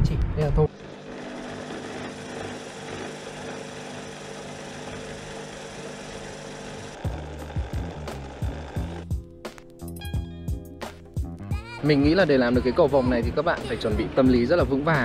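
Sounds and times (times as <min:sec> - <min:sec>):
electric drill running: 0:00.7 - 0:09.2
background music with a beat: 0:07.0 - 0:15.0.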